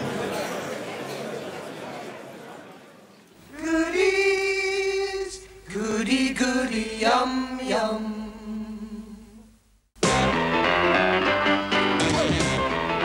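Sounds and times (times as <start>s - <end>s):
voices singing long notes: 3.4s - 13.0s.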